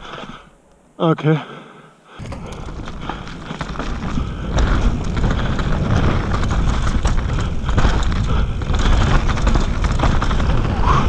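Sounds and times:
bike tyres rolling over dirt: 2.1s - 11.0s
bike rattling and knocking: 2.2s - 11.0s
wind rumble on microphone: 2.2s - 11.0s.

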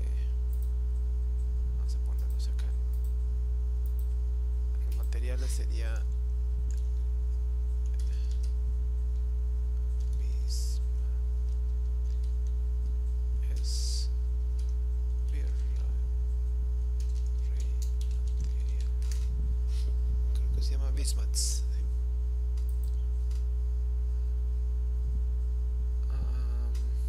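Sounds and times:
electrical mains hum: 0.0s - 27.0s
computer keyboard keystrokes: 7.8s - 9.2s, 9.9s - 10.3s, 11.5s - 13.7s, 17.0s - 19.3s, 22.6s - 23.4s.

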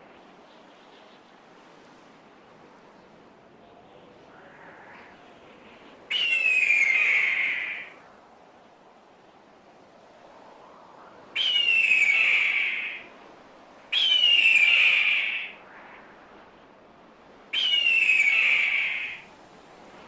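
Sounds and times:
bird of prey screaming: 6.1s - 7.9s, 11.4s - 13.0s, 14.0s - 15.6s, 17.6s - 19.2s.

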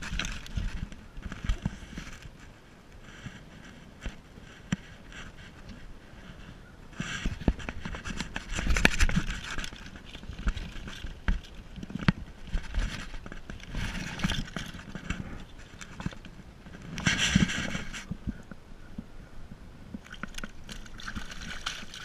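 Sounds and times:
fish splashing: 20.0s - 22.0s.

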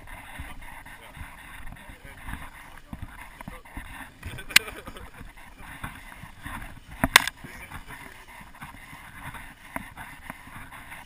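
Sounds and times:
camera handling rustling: 6.8s - 7.4s.

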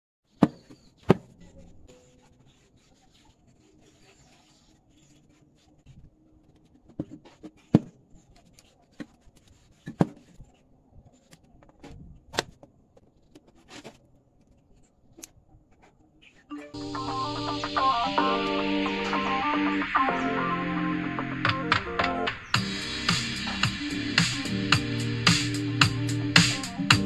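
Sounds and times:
quiet rubbing and shuffling: 1.3s - 16.5s.

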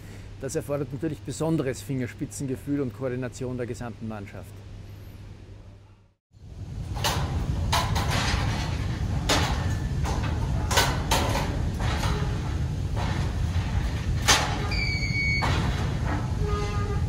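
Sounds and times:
metal door clanking shut: 6.9s - 17.0s.

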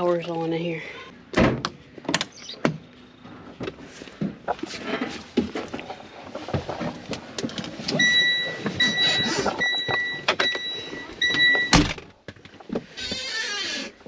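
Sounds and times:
door slamming: 1.3s - 1.7s, 11.7s - 12.1s
knocks and clicks of climbing in: 3.6s - 14.0s
truck warning chime beeps: 7.9s - 11.8s.

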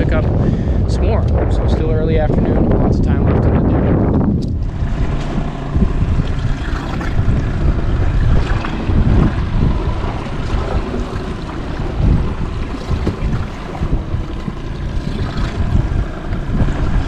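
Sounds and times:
boat motor running low: 0.0s - 17.0s
wind buffeting microphone: 0.0s - 17.0s
waves slapping: 4.6s - 17.0s.

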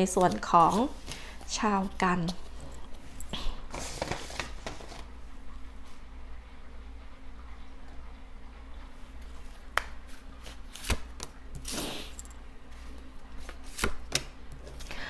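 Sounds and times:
cards clicking and tapping: 9.8s - 11.4s, 13.4s - 14.7s.

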